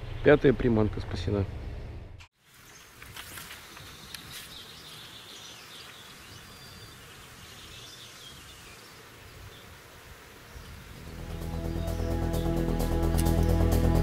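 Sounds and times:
insects buzzing: 0:02.5 - 0:14.0
high chirping: 0:10.9 - 0:14.0.

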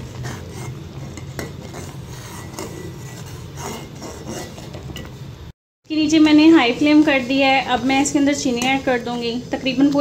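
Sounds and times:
metal spoon scraping pot: 0:00.0 - 0:05.2.

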